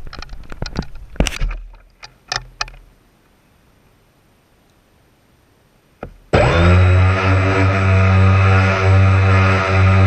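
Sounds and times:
model boat motor humming: 6.3s - 10.0s.

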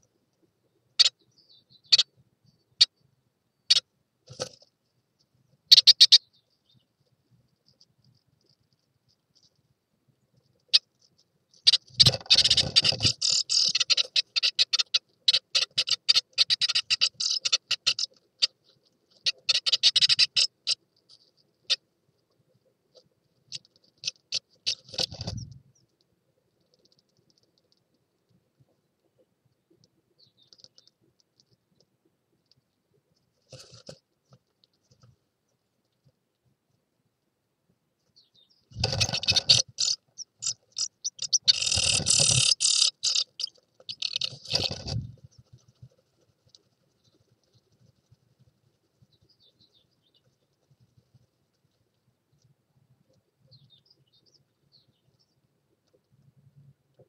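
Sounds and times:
birds rustling in nest: 10.3s - 25.8s, 32.4s - 35.3s, 38.7s - 49.3s.

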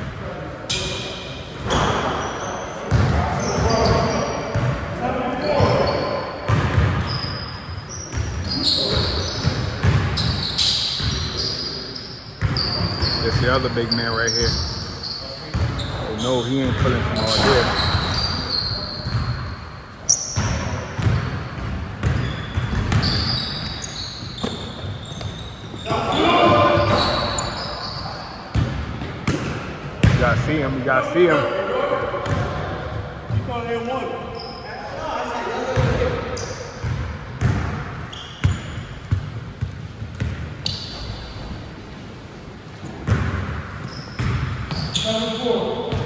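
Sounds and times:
sneakers squeaking on floor: 0.1s - 42.1s, 42.7s - 46.0s
basketball bouncing on court: 2.9s - 4.9s, 5.5s - 7.4s, 8.1s - 11.3s, 12.4s - 13.9s, 15.5s - 18.4s, 19.0s - 19.4s, 20.4s - 27.7s, 28.5s - 30.5s, 32.2s - 33.5s, 35.7s - 41.6s, 42.8s - 45.0s
basketball dribbling thuds: 6.5s - 7.1s, 8.1s - 10.3s, 20.4s - 23.3s, 28.5s - 30.5s, 36.8s - 40.5s, 42.9s - 43.6s
short high squeaks: 7.0s - 9.5s, 10.2s - 16.5s, 17.2s - 20.4s, 22.2s - 28.4s, 43.8s - 45.6s.

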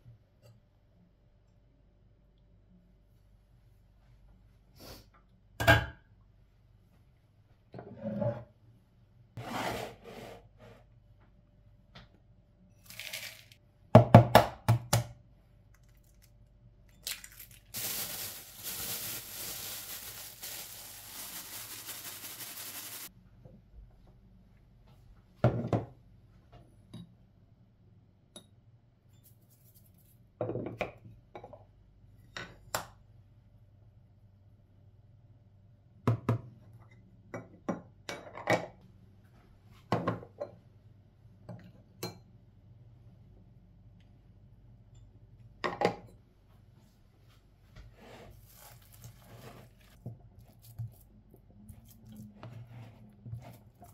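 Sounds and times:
plastic bag crinkling: 12.8s - 13.6s, 17.0s - 23.1s.

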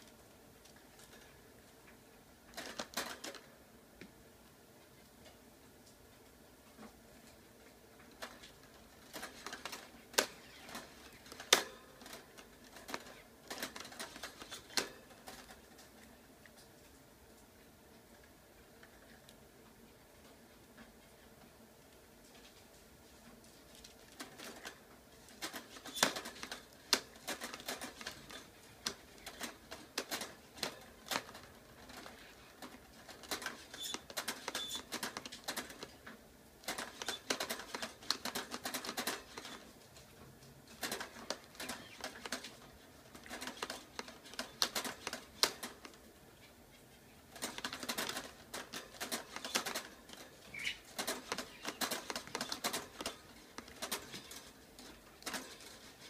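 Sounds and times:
bird rattling wire cage: 25.4s - 35.9s, 47.4s - 56.0s.

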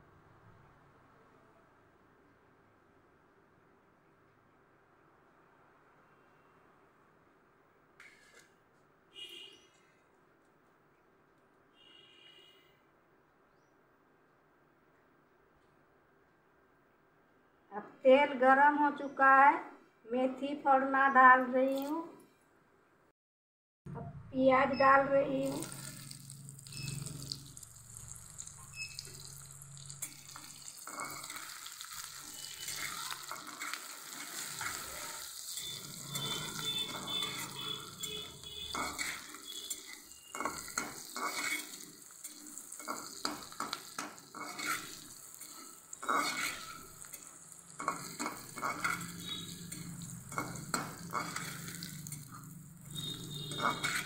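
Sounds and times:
onions sizzling in oil: 25.4s - 54.0s
steel ladle scraping and clinking: 25.5s - 54.0s.

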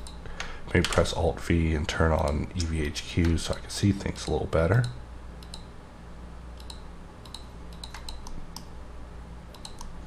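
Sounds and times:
low steady hum: 0.0s - 10.0s
mouse and keyboard clicks: 6.6s - 8.7s, 9.5s - 10.0s.

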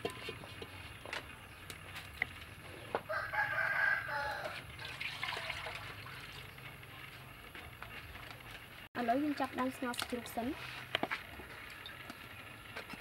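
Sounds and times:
rooster crowing: 3.1s - 4.6s
water splashing into a wok: 4.7s - 6.5s.

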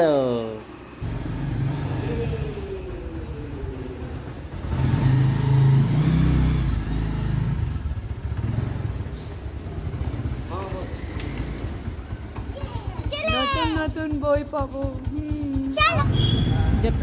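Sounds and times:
vehicle engine accelerating: 0.8s - 12.9s.

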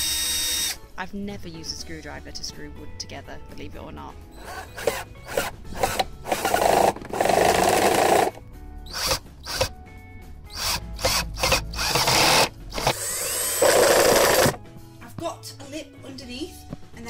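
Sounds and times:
cordless drill whirring: 0.0s - 0.8s, 4.4s - 9.7s, 10.5s - 14.6s.

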